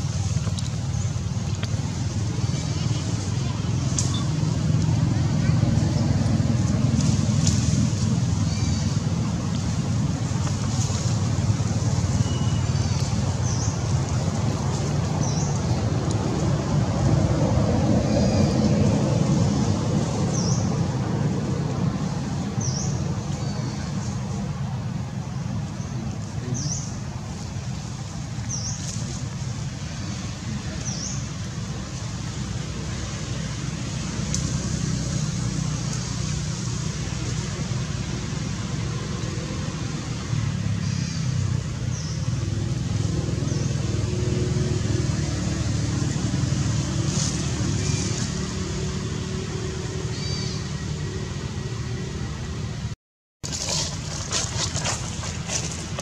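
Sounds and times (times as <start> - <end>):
steady low rumble: 0.0 - 40.9.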